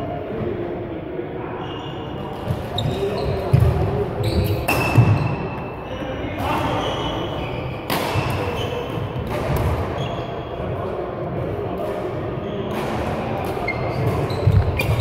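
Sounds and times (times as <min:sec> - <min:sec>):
footfalls on court floor: 0:02.4 - 0:05.4, 0:13.6 - 0:15.0
racket hitting shuttlecock: 0:07.8 - 0:08.6.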